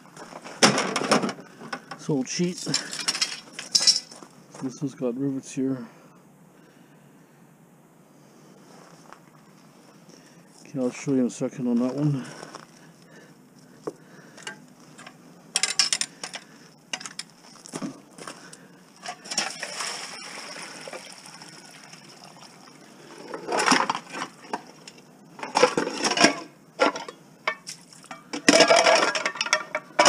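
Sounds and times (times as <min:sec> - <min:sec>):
water splashing on ground: 0:19.2 - 0:22.8
metal pots clanking: 0:25.4 - 0:30.0.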